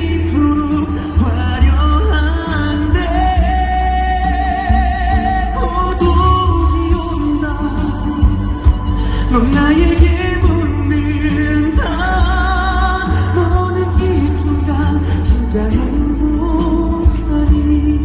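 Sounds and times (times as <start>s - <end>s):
instrumental accompaniment with bass: 0.0s - 18.0s
man singing into microphone: 0.0s - 18.0s.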